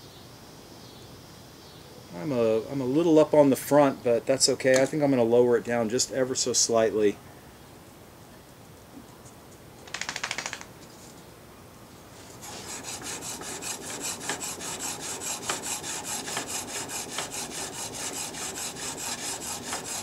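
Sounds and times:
blade rasping on sharpening plate: 0:12.4 - 0:20.0.

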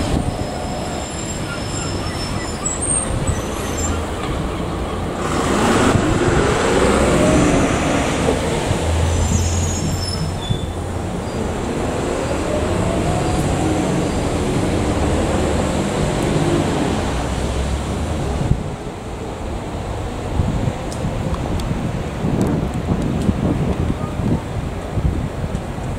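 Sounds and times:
diesel train engine: 0:00.0 - 0:23.2
train rumble: 0:00.0 - 0:25.9.

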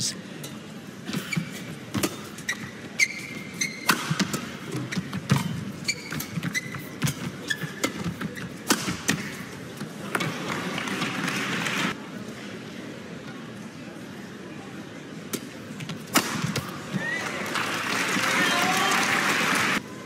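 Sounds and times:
shoes squeaking on court: 0:01.1 - 0:10.4.

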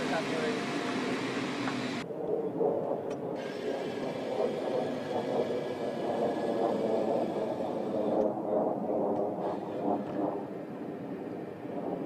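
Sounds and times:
jet engine idling: 0:00.0 - 0:02.0, 0:03.1 - 0:12.0.

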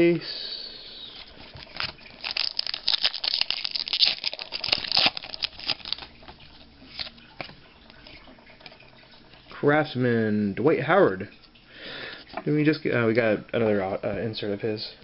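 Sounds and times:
foil wrapper crinkling: 0:01.2 - 0:08.3.

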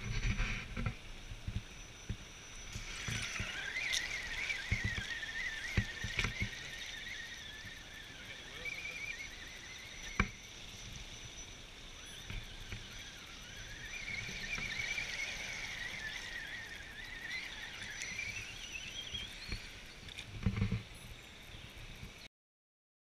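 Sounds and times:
electric motor and gearbox whining: 0:00.0 - 0:22.2
water splashing: 0:02.7 - 0:09.1.

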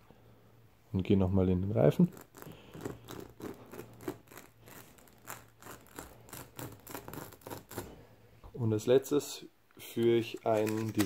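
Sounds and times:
metal rasp scratching rubber: 0:02.0 - 0:08.0.

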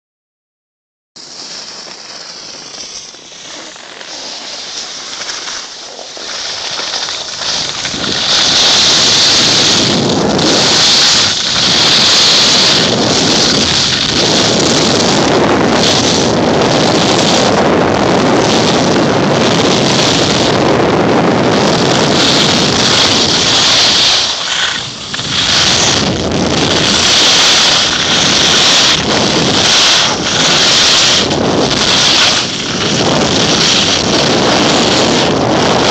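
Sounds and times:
skis scraping on snow: 0:01.2 - 0:35.9
wind rushing over microphone: 0:03.4 - 0:35.9.

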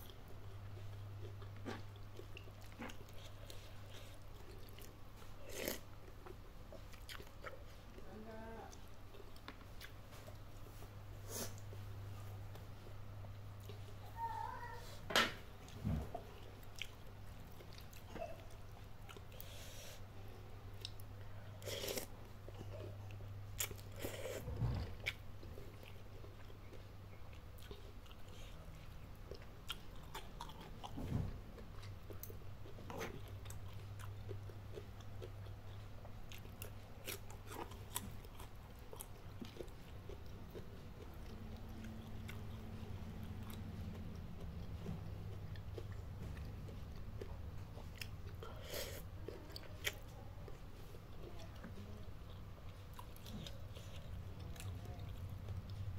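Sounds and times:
chewing and crunchy bites: 0:23.5 - 0:55.8.

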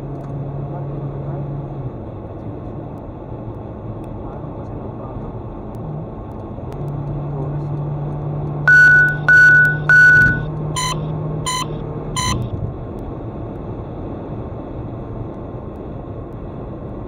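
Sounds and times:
car cabin road noise: 0:00.0 - 0:17.0
electronic alert beeps: 0:08.7 - 0:12.5.

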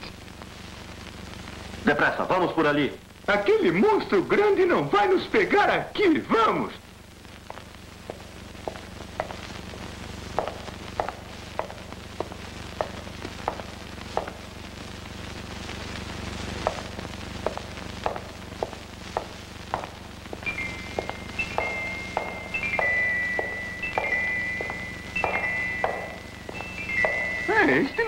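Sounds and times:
low hum and hiss: 0:00.0 - 0:28.0
cartoon footsteps on stone: 0:07.4 - 0:14.6, 0:16.6 - 0:28.0.

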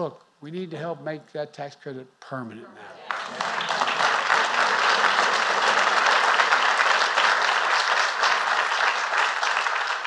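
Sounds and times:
large crowd applauding: 0:02.9 - 0:10.0.

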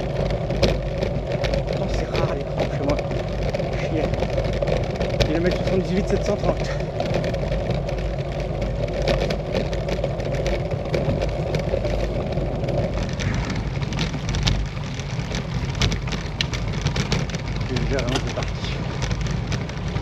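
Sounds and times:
bike frame rattling: 0:00.0 - 0:20.0
bike tyres rumbling: 0:00.0 - 0:20.0
hum: 0:00.0 - 0:20.0.

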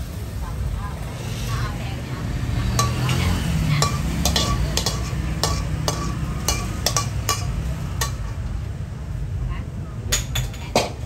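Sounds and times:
food sizzling: 0:00.0 - 0:08.9
metal spatula scraping a wok: 0:01.0 - 0:01.8, 0:02.5 - 0:08.6.

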